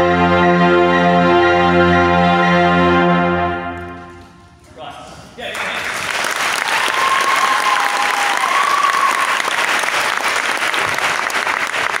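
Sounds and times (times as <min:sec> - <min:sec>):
crowd applauding and cheering: 0:05.5 - 0:12.0
high-pitched cheer: 0:06.5 - 0:10.2.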